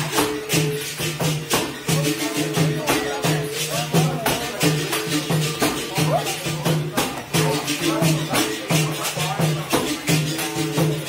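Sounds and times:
shaker strokes: 0:00.0 - 0:11.0.

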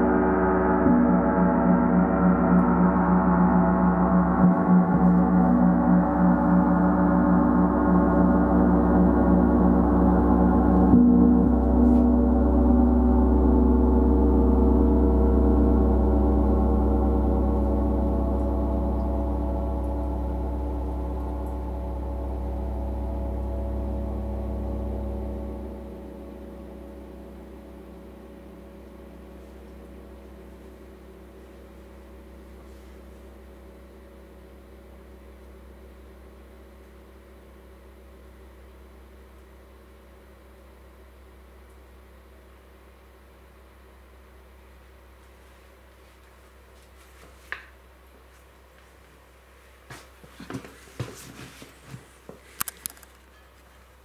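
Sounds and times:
large gong ringing: 0:00.0 - 0:36.8.

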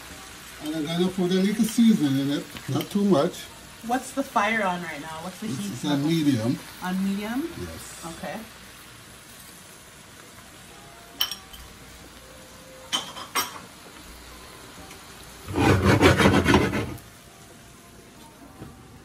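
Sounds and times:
spinach sizzling in skillet: 0:00.0 - 0:19.0
rasping rub: 0:15.5 - 0:17.0.

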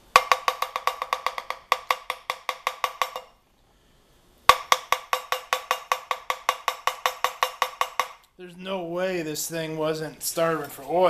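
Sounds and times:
fast knocking on steel plate: 0:00.0 - 0:03.4, 0:04.5 - 0:08.2.

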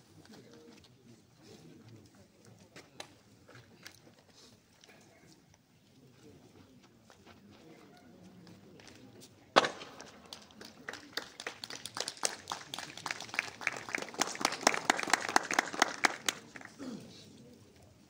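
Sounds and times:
spectators clapping: 0:10.0 - 0:16.8.

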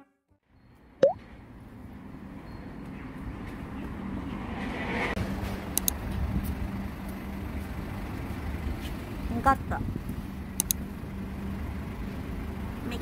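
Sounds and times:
traffic rumble: 0:00.7 - 0:13.0.

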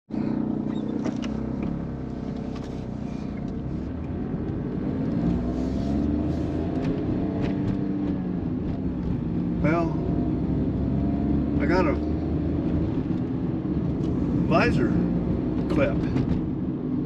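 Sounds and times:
car engine from inside cabin: 0:00.1 - 0:17.0.

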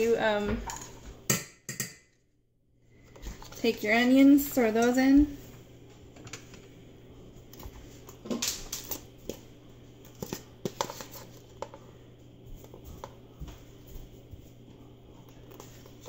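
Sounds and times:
faint low hum: 0:02.1 - 0:16.0.

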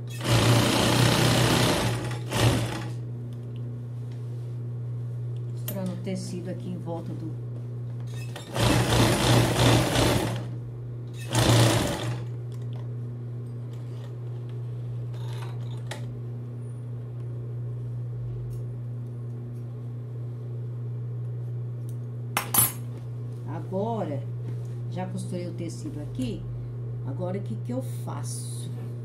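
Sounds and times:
sewing machine motor humming: 0:00.1 - 0:03.0, 0:08.2 - 0:12.4
sewing machine stitching: 0:00.1 - 0:03.0, 0:08.2 - 0:10.6, 0:11.2 - 0:12.3.

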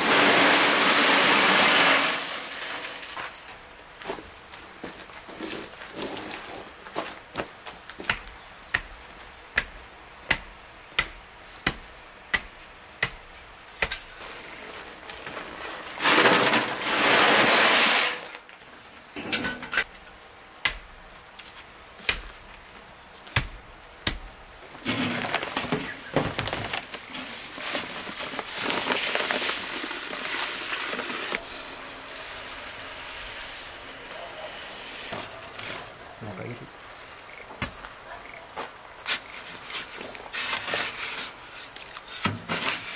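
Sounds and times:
hose spraying into metal wheelbarrow: 0:00.0 - 0:03.6, 0:14.2 - 0:18.5, 0:24.8 - 0:35.9.

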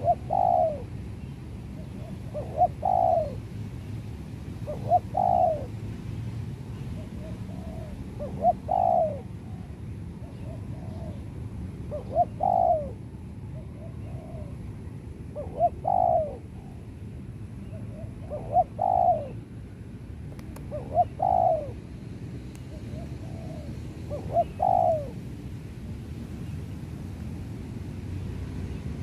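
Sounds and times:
dove cooing: 0:00.0 - 0:00.9, 0:01.8 - 0:03.4, 0:04.6 - 0:05.7, 0:07.0 - 0:11.3, 0:11.9 - 0:13.0, 0:13.6 - 0:14.6, 0:15.3 - 0:16.8, 0:17.7 - 0:19.4, 0:20.6 - 0:21.8, 0:22.7 - 0:25.2.

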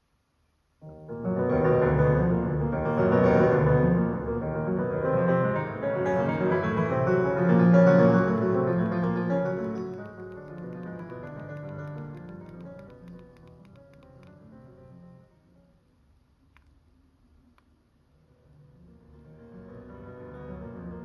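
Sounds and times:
piano music from speaker: 0:00.8 - 0:15.4.

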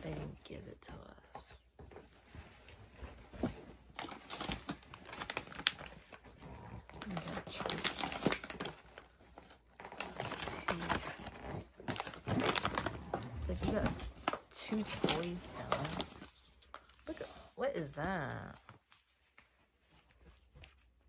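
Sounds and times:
packaging crinkling and rustling: 0:01.8 - 0:17.2.

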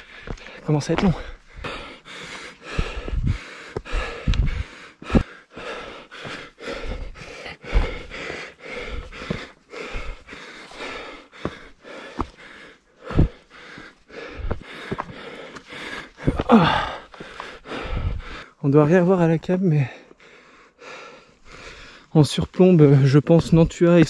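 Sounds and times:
heavy rhythmic breathing: 0:00.0 - 0:19.1, 0:19.8 - 0:22.1
low thuds of footfalls: 0:02.7 - 0:08.2.

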